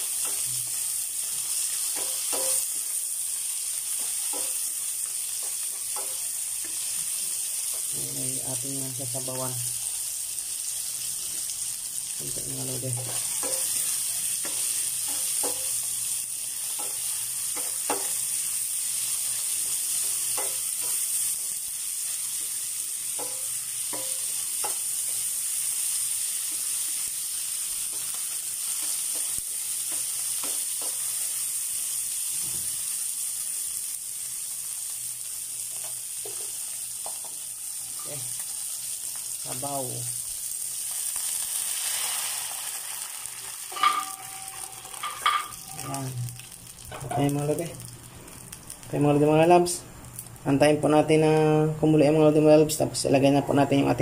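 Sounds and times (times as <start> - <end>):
food sizzling in oil: 0.0 - 51.4
spatula scraping and tapping pan: 1.8 - 2.8, 3.9 - 7.1, 12.9 - 15.8, 16.6 - 18.2, 23.1 - 25.2, 27.8 - 31.2, 43.7 - 45.9.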